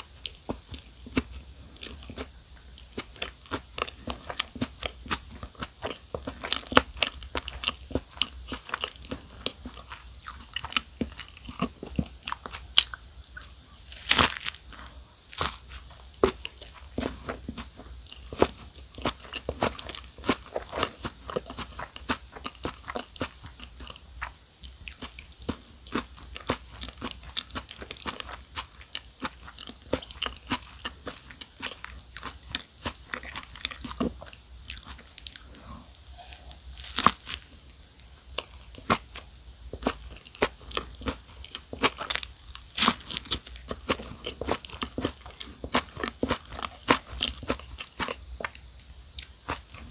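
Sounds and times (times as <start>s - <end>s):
chewing and crunching sandwich: 0.0s - 49.9s.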